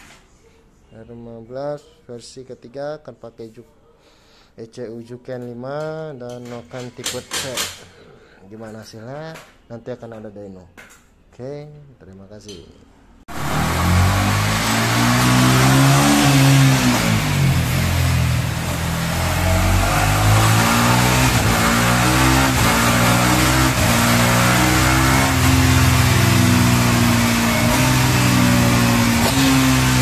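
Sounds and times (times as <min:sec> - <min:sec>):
motorcycle engine revving: 0:13.3 - 0:30.0.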